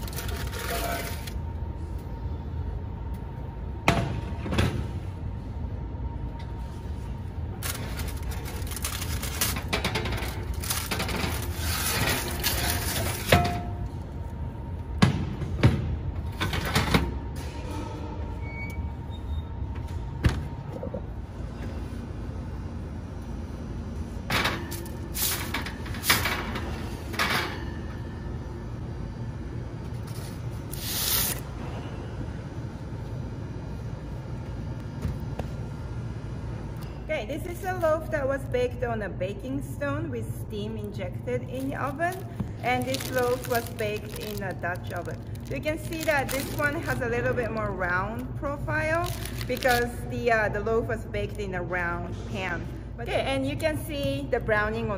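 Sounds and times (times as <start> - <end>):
steady low hum: 0.0 - 54.9
parchment paper crinkling: 7.6 - 12.6, 41.6 - 47.6, 48.9 - 50.0.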